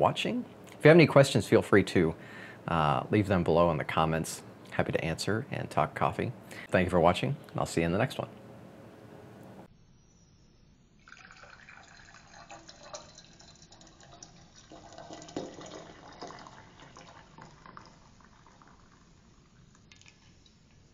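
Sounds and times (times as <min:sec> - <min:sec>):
coffee pouring into glass: 0:11.0 - 0:20.8.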